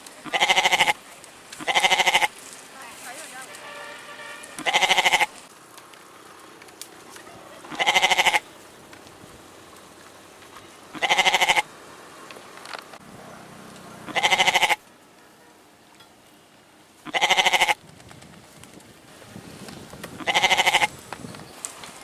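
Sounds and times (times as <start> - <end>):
goat bleating: 0.2 - 1.0, 1.6 - 2.3, 4.5 - 5.3, 7.5 - 8.5, 10.9 - 11.7, 14.0 - 14.8, 17.0 - 17.8, 20.2 - 20.9.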